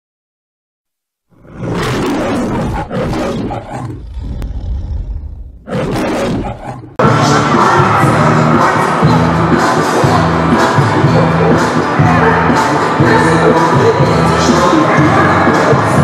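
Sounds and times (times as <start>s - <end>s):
lion roaring: 1.3s - 7.0s
music: 7.0s - 16.0s.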